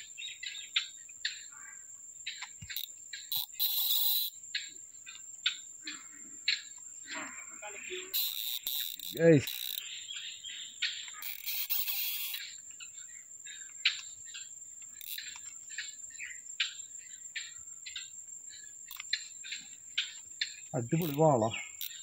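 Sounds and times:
high-pitched insect drone: 0.0 - 22.0
short repeated chirps: 7.9 - 9.8, 11.0 - 12.4.

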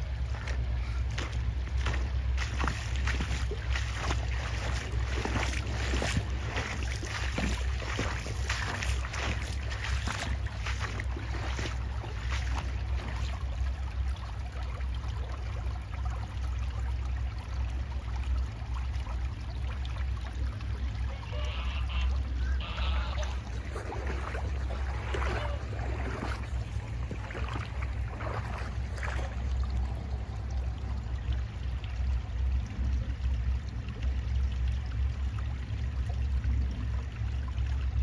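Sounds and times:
wind rumbling on microphone: 0.0 - 13.8
water trickling over stones: 0.0 - 38.0.

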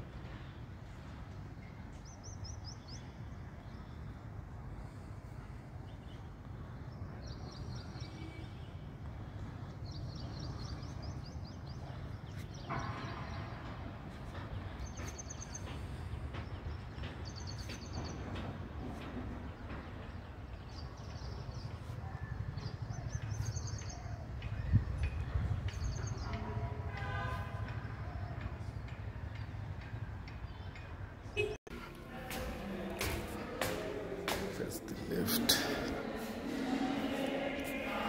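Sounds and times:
birds chirping: 5.3 - 26.6.

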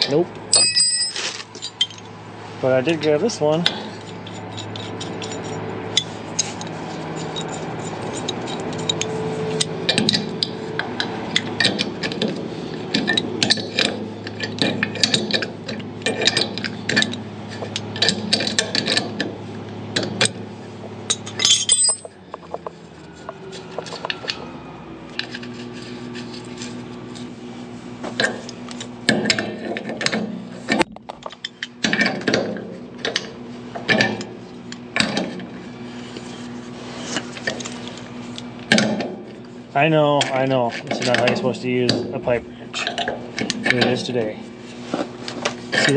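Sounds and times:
metal tools clinking and scraping: 0.0 - 2.2, 3.2 - 10.6, 21.1 - 24.5
steady low hum: 0.0 - 45.9.

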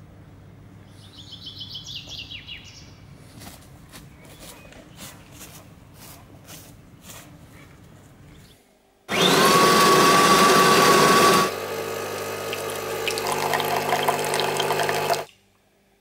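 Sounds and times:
coffee grinder whirring: 9.1 - 15.3
coffee machine pump humming: 9.1 - 15.3
coffee streaming into mug: 9.2 - 15.3.

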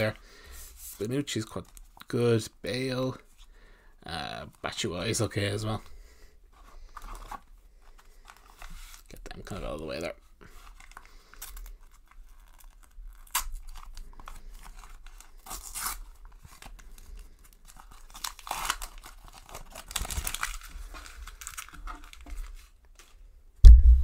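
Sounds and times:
plastic wrapper crackling: 10.7 - 23.1.

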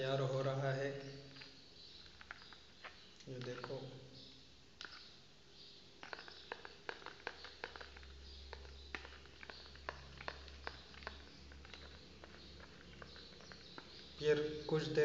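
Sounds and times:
spoon stirring in plastic bowl: 1.2 - 3.9, 6.0 - 14.9.

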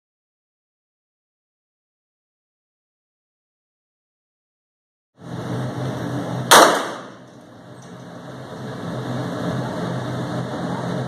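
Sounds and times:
pistol shot ringing indoors: 6.5 - 7.2.

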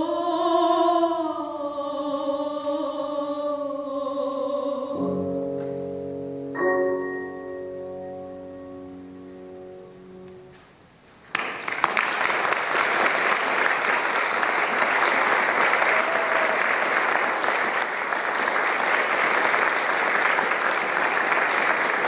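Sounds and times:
grand piano chord: 5.0 - 10.9
audience applause: 11.3 - 22.0.

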